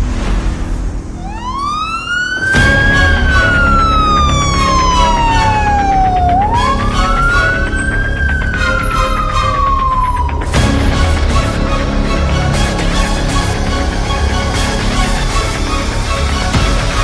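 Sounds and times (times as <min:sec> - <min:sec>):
background music with steady beat: 0:00.0 - 0:17.0
wailing siren: 0:01.2 - 0:11.7.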